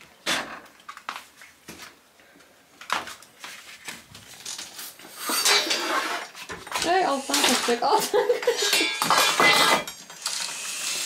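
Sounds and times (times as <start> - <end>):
rustling and crinkling: 0.7 - 8.3.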